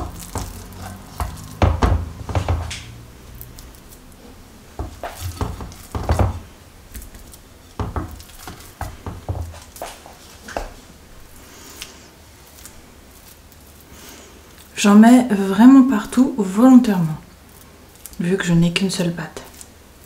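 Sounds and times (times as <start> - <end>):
wooden spoon scraping glass bowl: 0.0 - 2.7, 4.8 - 6.5
dull thumps of filling dropped: 0.0 - 3.0, 4.8 - 10.0.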